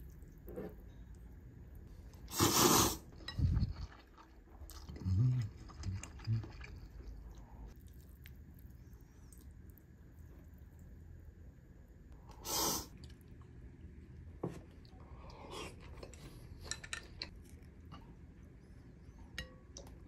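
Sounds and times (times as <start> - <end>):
chewing: 3.2 - 9.5.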